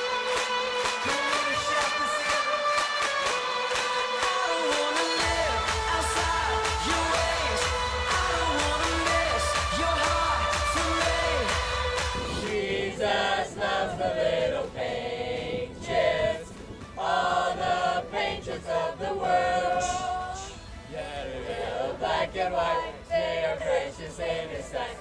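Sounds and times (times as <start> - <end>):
group singing unaccompanied: 2.7 - 25.0.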